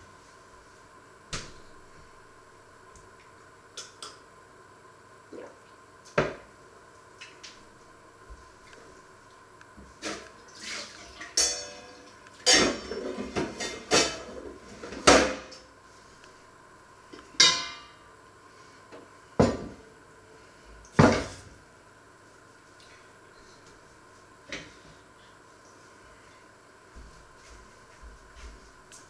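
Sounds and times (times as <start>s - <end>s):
metal pots and pans clattering: 11.3s - 15.5s.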